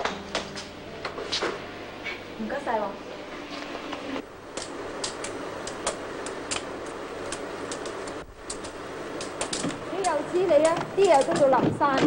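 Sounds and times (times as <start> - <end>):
machinery humming: 0.0 - 12.0.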